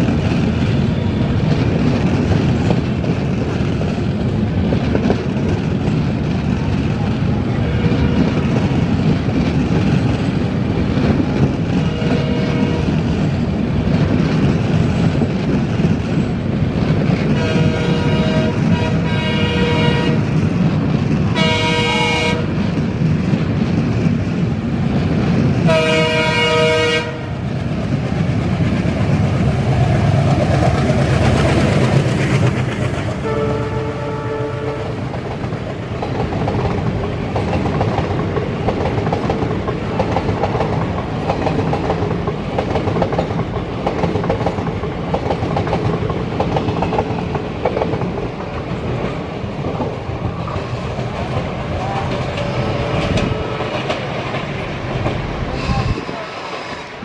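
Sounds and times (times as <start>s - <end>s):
train rumbling: 0.0s - 57.0s
locomotive horn blasts: 11.8s - 12.9s, 17.4s - 20.3s, 21.3s - 22.6s, 25.7s - 27.4s, 33.2s - 35.0s, 52.3s - 53.9s.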